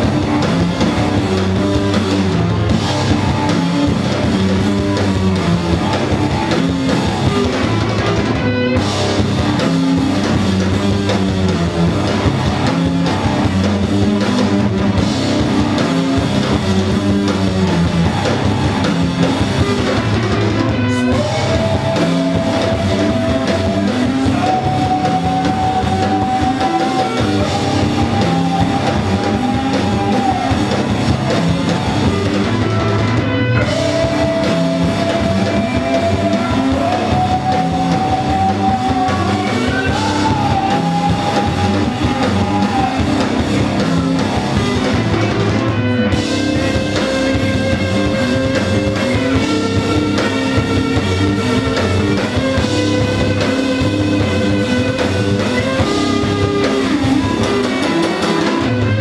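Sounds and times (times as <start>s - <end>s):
live rock band playing: 0.0s - 59.0s
long held high notes: 16.7s - 59.0s.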